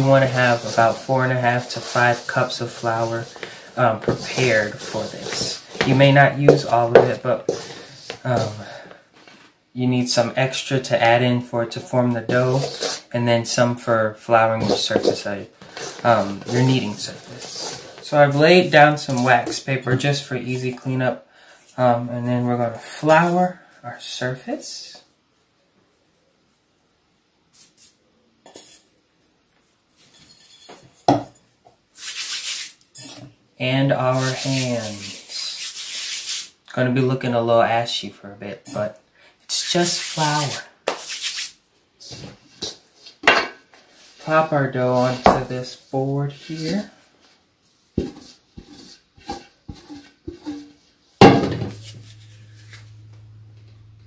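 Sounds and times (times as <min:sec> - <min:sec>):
wooden spoon scraping metal bowl: 0:00.0 - 0:08.9, 0:12.2 - 0:13.1, 0:14.6 - 0:20.0, 0:32.0 - 0:33.3, 0:44.1 - 0:47.0, 0:48.0 - 0:53.8
flour rustling on paper: 0:00.0 - 0:09.5, 0:34.1 - 0:36.5
low steady hum: 0:51.2 - 0:54.0.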